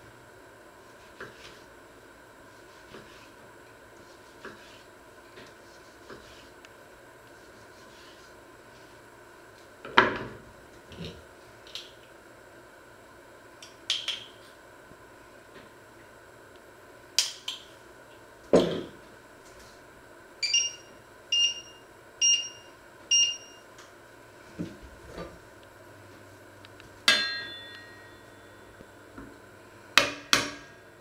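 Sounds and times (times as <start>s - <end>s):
short electronic beeps: 20.4s - 23.6s
utensil striking pan: 27.1s - 28.3s.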